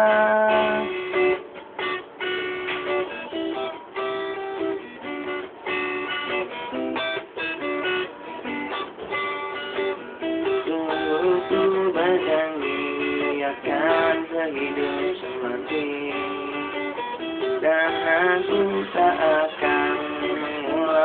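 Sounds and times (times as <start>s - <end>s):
person singing a note: 0.0s - 0.9s
strummed guitar chords: 0.0s - 21.0s.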